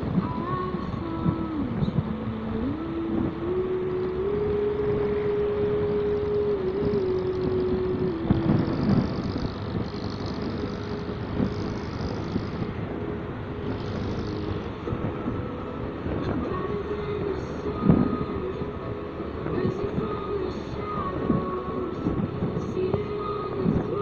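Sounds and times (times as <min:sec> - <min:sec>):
wind and road noise: 0:00.0 - 0:24.0
motorcycle engine running: 0:03.9 - 0:24.0.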